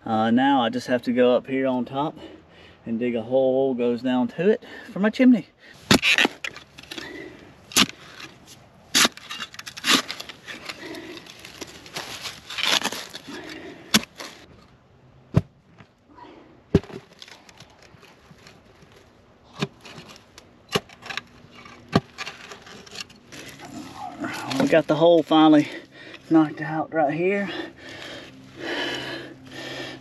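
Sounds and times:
scraping crumbling dirt: 0:05.7 - 0:16.0, 0:16.7 - 0:29.9
shovel striking clay soil: 0:05.8 - 0:07.1, 0:07.7 - 0:11.4, 0:12.6 - 0:14.4.

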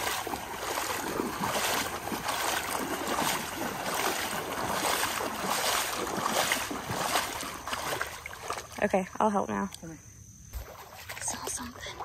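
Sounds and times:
wading steps: 0:00.0 - 0:08.9
water sloshing and splashing: 0:00.0 - 0:09.8, 0:10.5 - 0:12.0.

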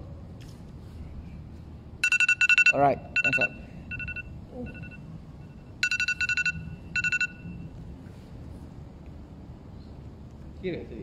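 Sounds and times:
timer alarm beeping: 0:02.0 - 0:07.7.

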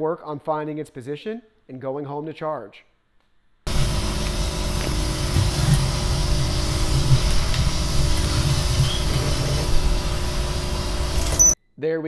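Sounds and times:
robot vacuum whirring: 0:03.7 - 0:11.6.

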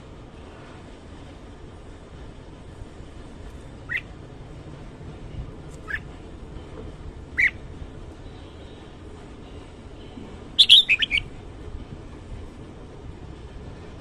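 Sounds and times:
bird chirping: 0:05.8 - 0:06.1, 0:07.4 - 0:07.6, 0:10.6 - 0:11.3.

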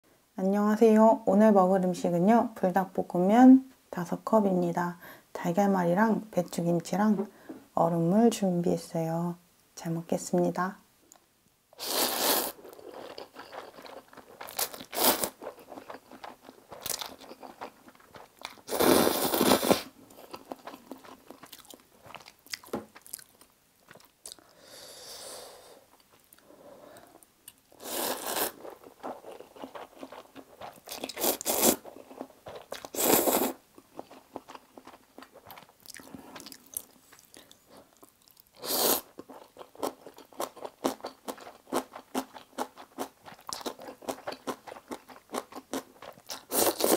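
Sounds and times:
loud noodle slurps: 0:11.8 - 0:12.9, 0:14.4 - 0:15.4, 0:18.7 - 0:19.9, 0:27.8 - 0:28.6, 0:31.0 - 0:31.8, 0:32.9 - 0:33.6, 0:38.6 - 0:39.1, 0:46.5 - 0:46.9.

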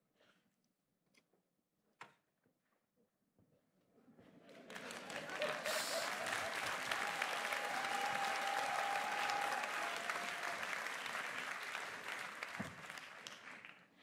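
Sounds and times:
audience applauding: 0:04.5 - 0:14.0.

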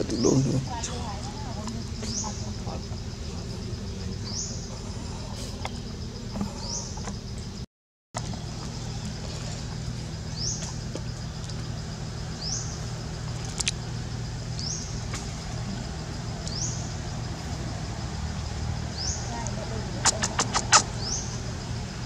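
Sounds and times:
low engine drone: 0:00.0 - 0:07.6, 0:08.2 - 0:22.0
bird short rising call: 0:20.0 - 0:21.2.

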